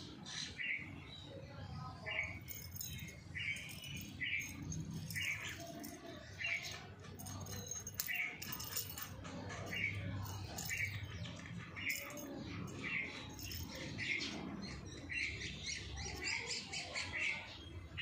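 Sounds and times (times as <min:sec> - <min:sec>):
bird chirping: 0:00.0 - 0:18.0.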